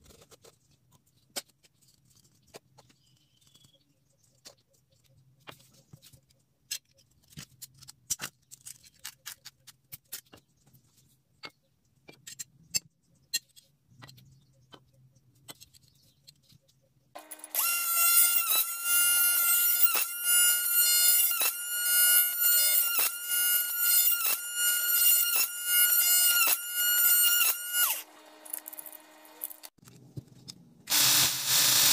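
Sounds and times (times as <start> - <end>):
drill press whining: 17.2 - 29.8.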